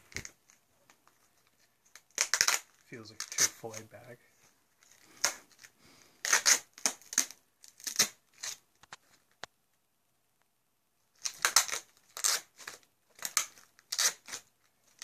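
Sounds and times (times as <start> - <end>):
tape and paper ripping: 0.1 - 4.0, 4.8 - 9.3, 11.1 - 15.0.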